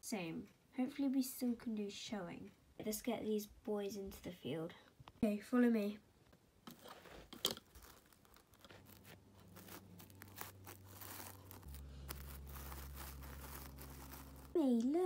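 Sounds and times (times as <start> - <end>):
low steady hum: 8.3 - 15.0.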